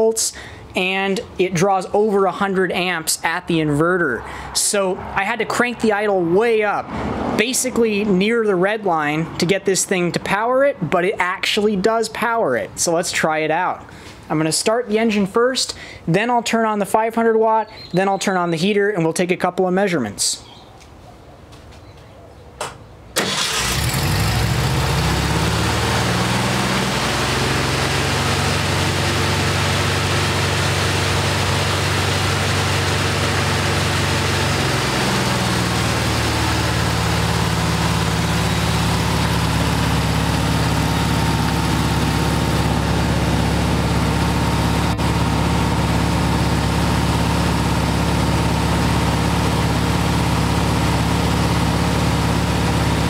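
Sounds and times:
engine running at high idle: 23.2 - 53.0.

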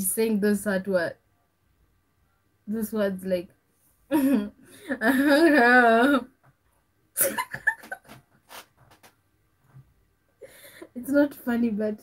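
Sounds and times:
woman laughing: 4.1 - 6.2, 7.2 - 8.6.

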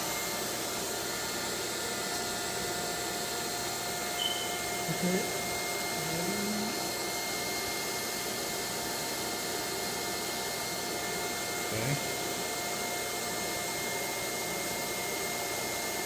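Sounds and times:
faint whistling tones: 4.2 - 4.7.

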